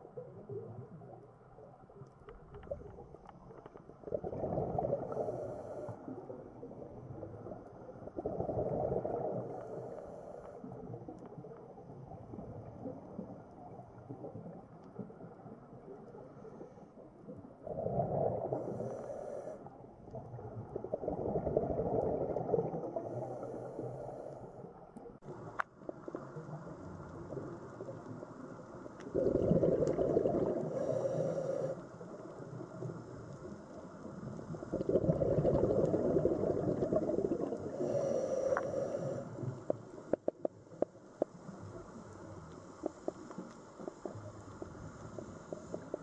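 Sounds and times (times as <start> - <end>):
exhaled bubbles rumbling underwater: 0.0 - 46.0
regulator inhalation hiss: 30.7 - 31.9, 37.7 - 39.6.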